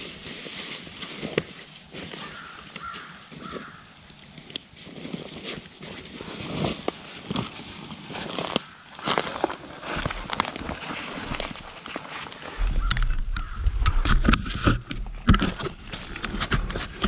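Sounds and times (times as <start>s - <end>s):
footsteps crunching dry leaves: 0.0s - 3.8s, 4.7s - 13.6s
twigs snapping: 2.2s - 4.9s, 8.2s - 14.4s.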